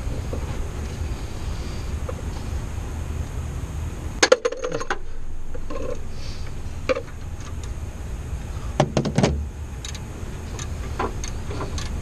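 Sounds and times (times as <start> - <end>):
low rumble: 0.0 - 12.0
ratchet clicking: 9.8 - 12.0.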